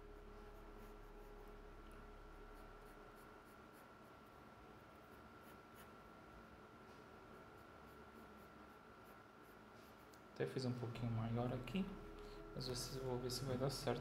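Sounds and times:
faint high-pitched tone: 0.0s - 3.5s, 10.9s - 14.0s
pencil scratching on paper: 0.4s - 1.6s, 2.5s - 6.0s, 7.3s - 10.1s.

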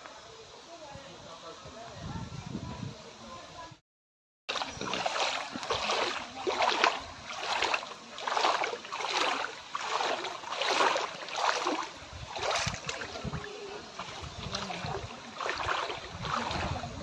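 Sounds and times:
floodwater sloshing and splashing: 4.5s - 17.0s.

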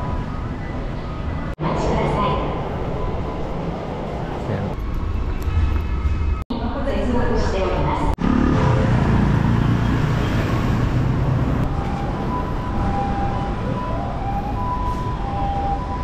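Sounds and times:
low street rumble: 0.0s - 16.0s
two-tone hi-lo siren: 11.6s - 16.0s.

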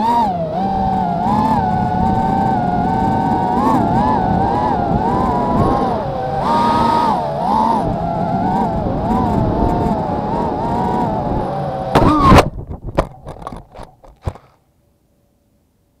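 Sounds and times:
quadcopter motors whining: 0.0s - 14.4s
knocks and clatters tumbling: 12.0s - 14.6s.

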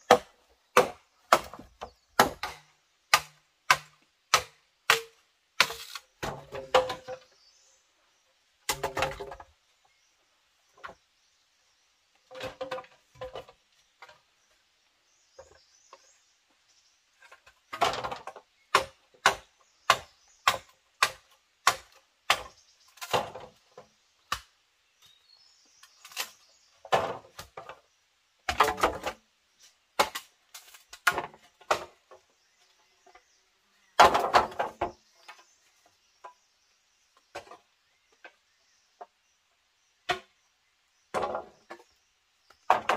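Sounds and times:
tool chopping wood: 0.0s - 7.2s, 17.7s - 23.6s, 28.5s - 29.2s, 30.0s - 32.0s, 34.0s - 35.0s.

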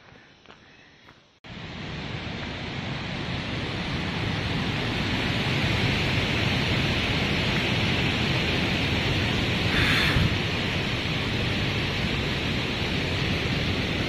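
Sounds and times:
waterfall rushing: 2.9s - 14.0s.

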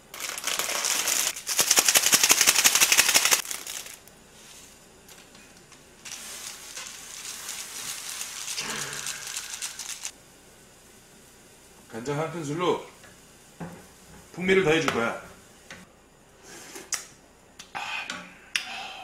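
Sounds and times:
plastic packets crinkling: 0.0s - 4.1s, 6.0s - 10.1s.

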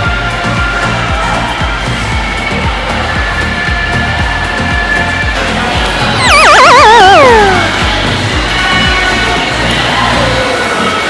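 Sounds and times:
bass line: 6.1s - 8.4s.

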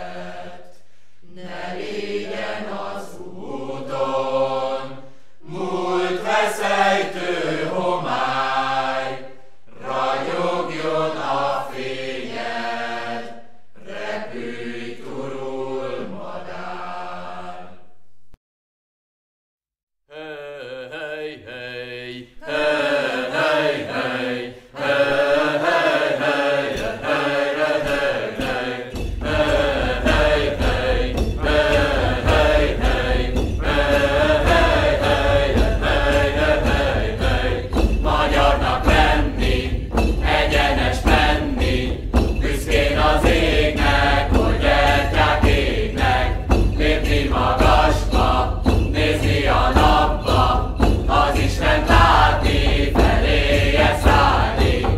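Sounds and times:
chanted singing: 0.0s - 17.8s, 20.1s - 54.9s
low drum beat: 27.8s - 54.9s.

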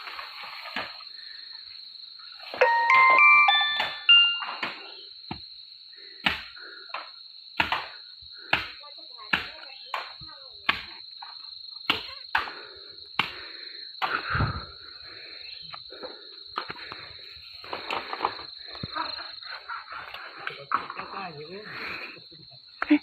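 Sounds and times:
high-pitched insect drone: 0.1s - 6.0s.

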